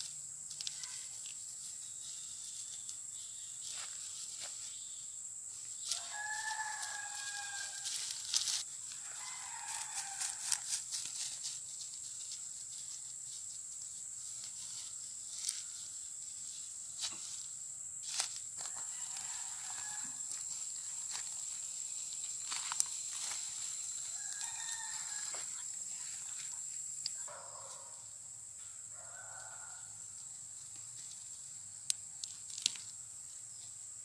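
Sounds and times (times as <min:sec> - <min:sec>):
fern stems and grass rustling: 0:00.0 - 0:27.8, 0:30.6 - 0:33.0
rooster crowing: 0:05.9 - 0:10.8, 0:18.6 - 0:20.5, 0:23.9 - 0:25.7, 0:28.8 - 0:30.2.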